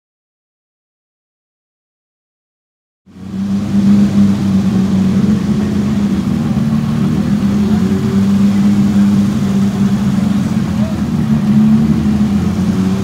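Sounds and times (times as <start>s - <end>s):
car engine idling: 3.1s - 13.0s.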